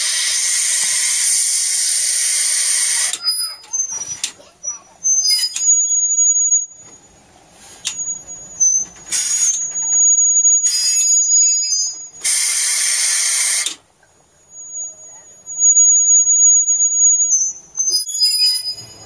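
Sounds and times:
trolley wheels squealing on rails: 0.0 - 19.0.

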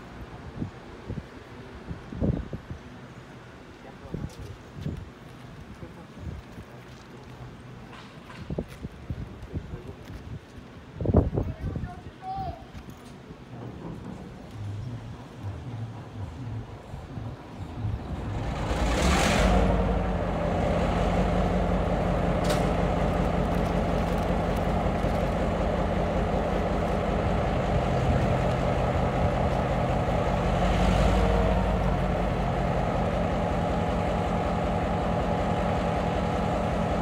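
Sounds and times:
locomotive engine droning: 13.3 - 37.0.

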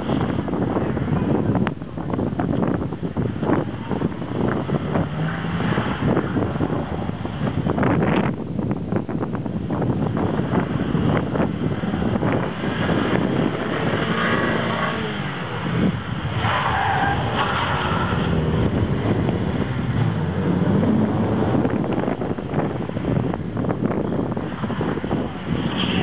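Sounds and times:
car engine revving: 0.0 - 8.4, 9.7 - 26.0
wind buffeting microphone: 0.0 - 26.0
tyres squealing: 12.5 - 18.6.

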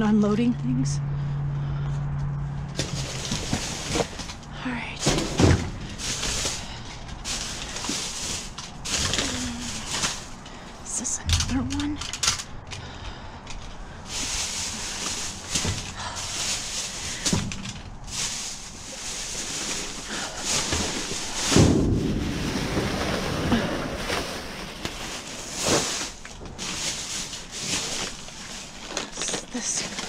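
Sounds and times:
plastic bags rustling and crinkling: 2.7 - 30.0
loud thump: 21.5 - 22.4.

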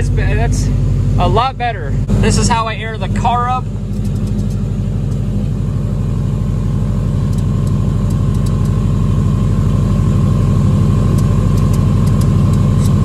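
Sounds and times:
car engine idling: 0.0 - 13.0
light clicks: 3.9 - 5.2, 7.3 - 8.8, 11.1 - 13.0.

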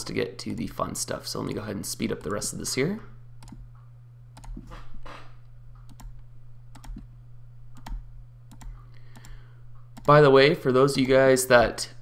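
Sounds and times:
low electrical hum: 0.0 - 12.0
computer mouse clicking: 2.1 - 2.5, 3.4 - 4.8, 5.8 - 7.1, 7.8 - 10.2.

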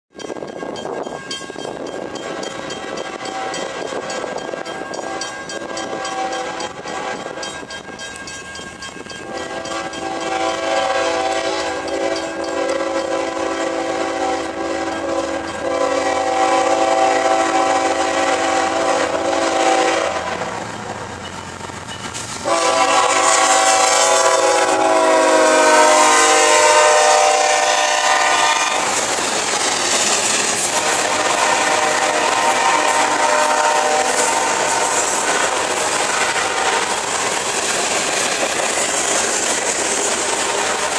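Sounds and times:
train rumble: 0.1 - 40.9
locomotive air horn blasts: 2.8 - 7.5, 9.2 - 20.6, 22.4 - 29.7, 30.6 - 37.2, 40.4 - 40.9.

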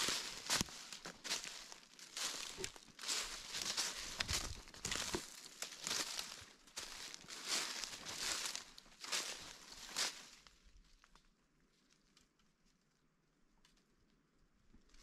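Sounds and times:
footsteps crunching dry leaves: 0.0 - 10.6.

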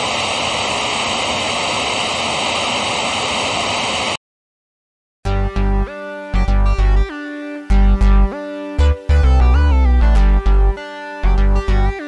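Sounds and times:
television static hiss: 0.0 - 4.2
music with deep bass: 5.3 - 12.0.

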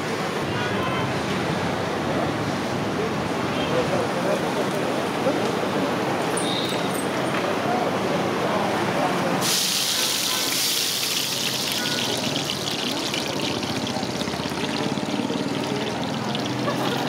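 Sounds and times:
oil sizzling in a wok: 9.4 - 17.0.

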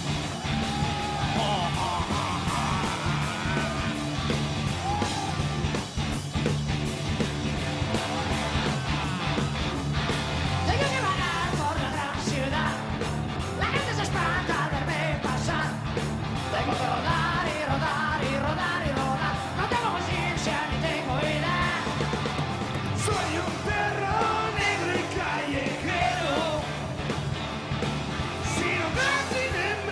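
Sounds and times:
rock band playing loudly: 0.0 - 29.9
person yelling singing: 0.6 - 5.4, 16.5 - 22.0, 28.4 - 29.9.

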